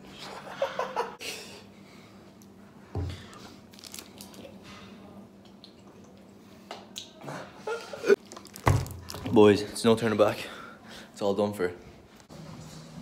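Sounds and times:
packaging crinkling and tearing: 0:03.7 - 0:04.4, 0:08.2 - 0:09.3.

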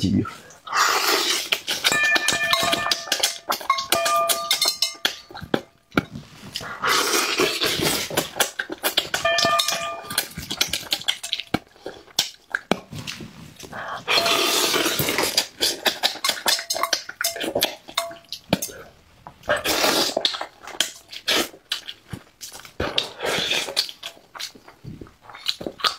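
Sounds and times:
wet chewing: 0:00.2 - 0:25.9
loud slurps: 0:00.4 - 0:01.9, 0:06.5 - 0:09.1, 0:13.8 - 0:16.1, 0:19.5 - 0:20.4.

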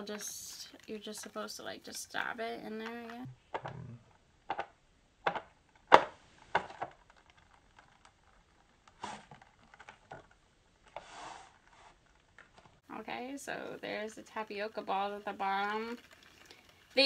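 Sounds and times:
plastic rustle: 0:06.2 - 0:12.9.

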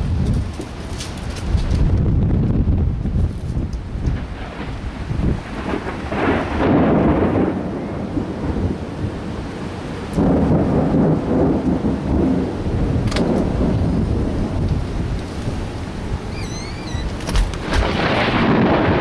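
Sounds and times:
thunder rumbling: 0:00.0 - 0:19.0.

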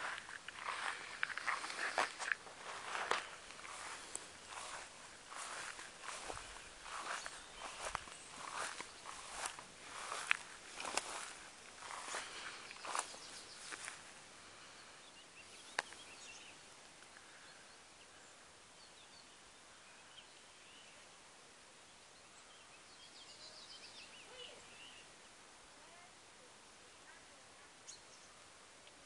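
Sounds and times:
footsteps through grass: 0:00.0 - 0:14.7.

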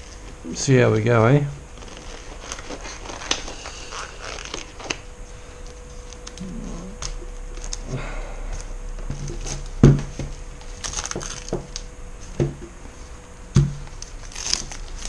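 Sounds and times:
tape crackling and ripping: 0:01.7 - 0:07.9, 0:10.7 - 0:11.9, 0:13.8 - 0:15.0.

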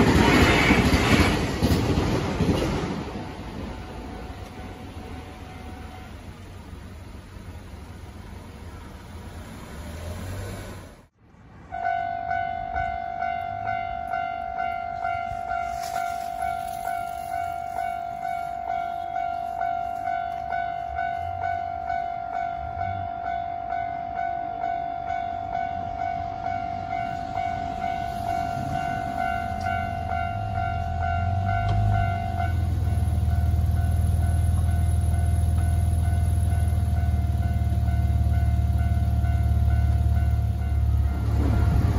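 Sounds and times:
level crossing warning bell: 0:11.7 - 0:41.9.

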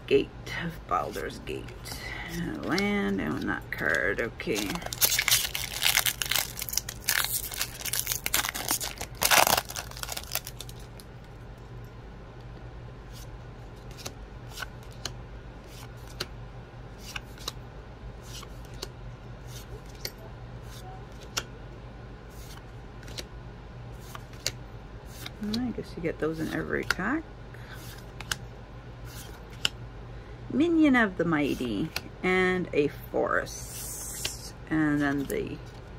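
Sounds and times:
plastic wrapper crinkling and tearing: 0:04.5 - 0:11.1.

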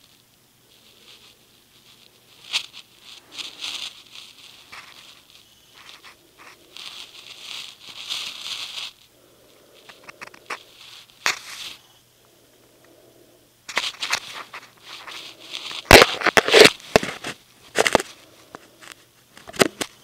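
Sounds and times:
blanket rustling and crackling: 0:00.0 - 0:12.0, 0:13.0 - 0:19.0.

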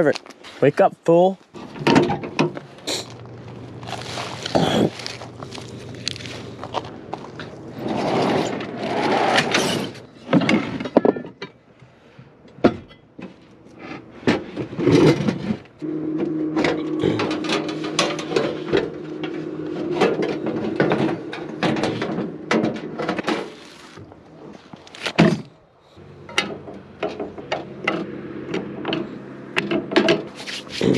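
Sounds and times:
steady low hum: 0:01.4 - 0:10.8, 0:11.6 - 0:24.8.

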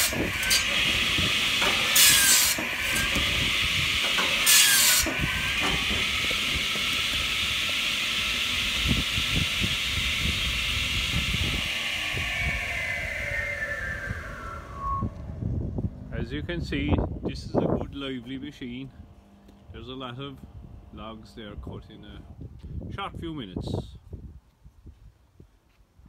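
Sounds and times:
saw blade cutting log: 0:00.0 - 0:12.0
saw blade whining: 0:00.0 - 0:15.6.

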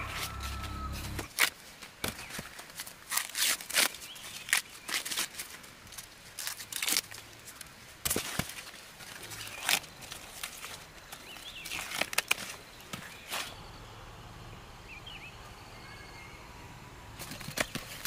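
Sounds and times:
footsteps crunching dry leaves: 0:00.0 - 0:13.6
low steady hum: 0:05.7 - 0:18.0.

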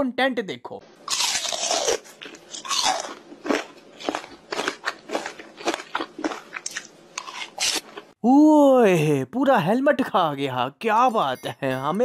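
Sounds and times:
crunching bites and chewing: 0:01.1 - 0:08.2.

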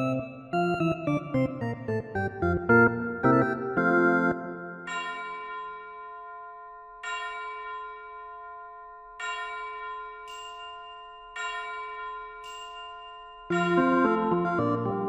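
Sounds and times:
music track: 0:00.0 - 0:04.8, 0:13.5 - 0:15.0
bell-like chord ringing: 0:04.3 - 0:14.9
high chime: 0:04.8 - 0:14.6.

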